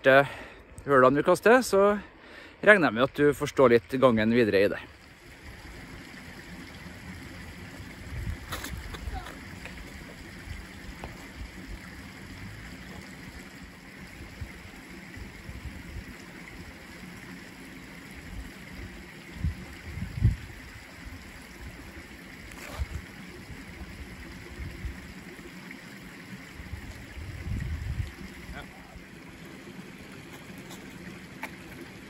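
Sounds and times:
wind buffeting microphone: 0:07.8 - 0:11.9, 0:19.3 - 0:21.2, 0:26.6 - 0:28.6.

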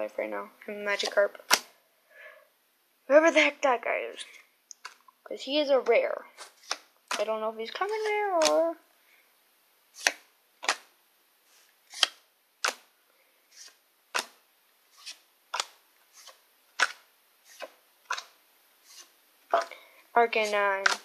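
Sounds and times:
trading cards snapping: 0:06.4 - 0:07.3, 0:08.0 - 0:08.6, 0:10.0 - 0:10.9, 0:11.9 - 0:12.9, 0:14.1 - 0:14.4, 0:15.0 - 0:18.3, 0:20.8 - 0:21.0.

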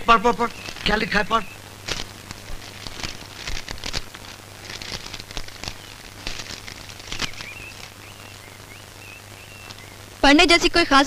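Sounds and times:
low steady hum: 0:00.0 - 0:11.0
paper crinkling and rustling: 0:00.4 - 0:09.9.

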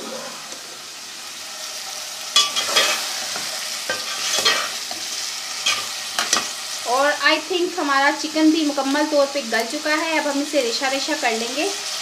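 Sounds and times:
vegetables sizzling in a pot: 0:00.0 - 0:12.0
spatula scraping pot: 0:02.4 - 0:06.5.

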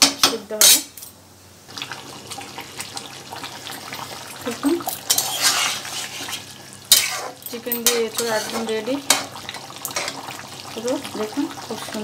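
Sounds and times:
spatula stirring curry: 0:05.0 - 0:09.3.

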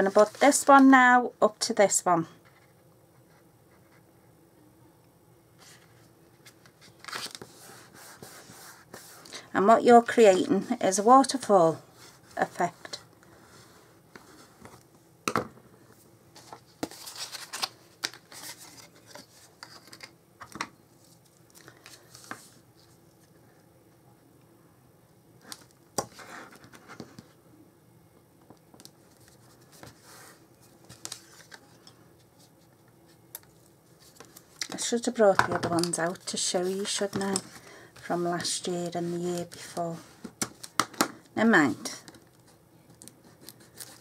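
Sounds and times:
paper rustling and scraping: 0:05.6 - 0:09.3, 0:16.4 - 0:20.1.

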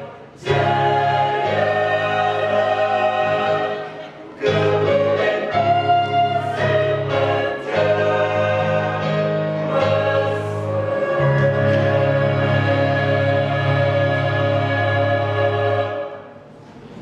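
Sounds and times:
choir singing sustained chords: 0:00.0 - 0:16.6.

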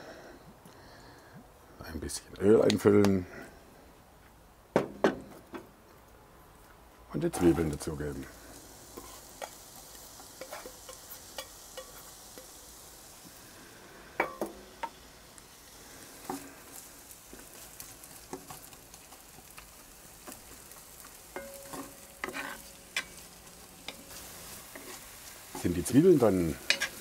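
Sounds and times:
onions sizzling in oil: 0:07.2 - 0:27.0.

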